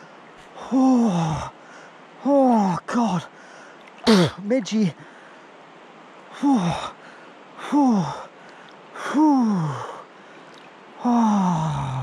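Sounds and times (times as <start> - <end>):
man gasping and groaning: 0.6 - 1.6, 6.4 - 7.0, 7.6 - 8.3, 9.0 - 10.0, 11.0 - 12.0.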